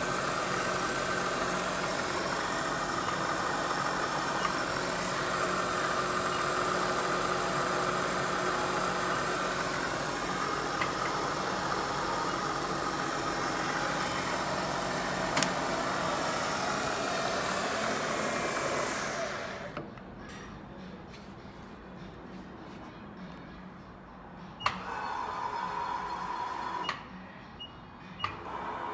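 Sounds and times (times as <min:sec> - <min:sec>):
milling machine motor hum and whine: 0:00.0 - 0:19.9, 0:24.6 - 0:27.0, 0:28.2 - 0:28.9
click: 0:15.3 - 0:15.5.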